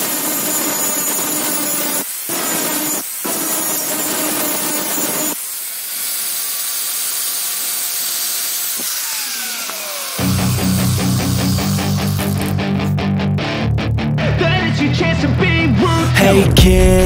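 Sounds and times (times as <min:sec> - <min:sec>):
angle grinder grinding steel: 0:00.0 - 0:13.2.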